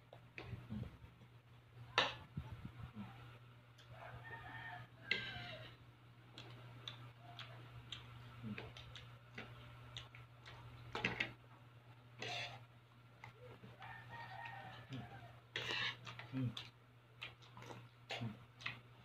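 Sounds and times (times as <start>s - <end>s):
steady low hum: 0.0s - 19.0s
chewing noises: 6.3s - 11.3s, 14.4s - 19.0s.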